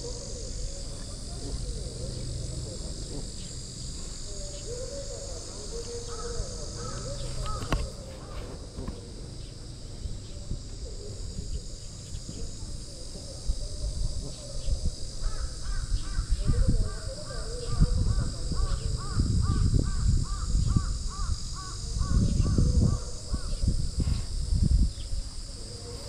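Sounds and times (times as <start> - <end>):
steady high hiss: 0.0 - 26.0
sharp click: 7.4 - 7.9.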